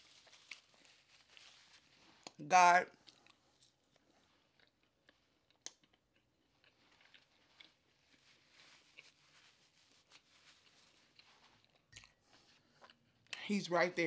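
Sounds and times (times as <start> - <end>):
chewing mouth sounds: 11.1 - 13.4.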